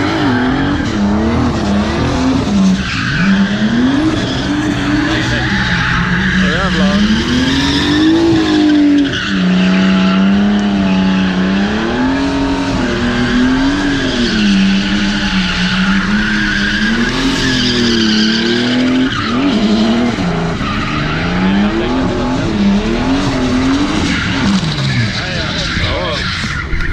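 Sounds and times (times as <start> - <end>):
engines revving hard: 0.0 - 26.9
tyre squeal: 2.5 - 21.8.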